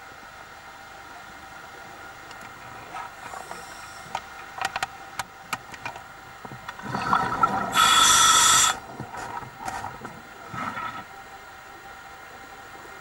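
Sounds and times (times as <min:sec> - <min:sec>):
bubbling exhaled air: 0:06.6 - 0:11.1
regulator hissing: 0:07.0 - 0:09.4.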